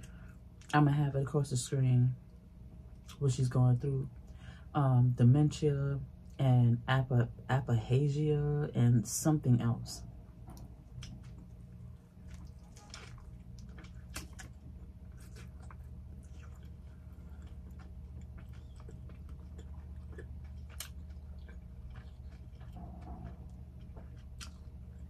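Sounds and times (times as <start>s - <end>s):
steady low hum: 0.0s - 25.0s
person chewing with wet mouth clicks: 12.3s - 25.0s.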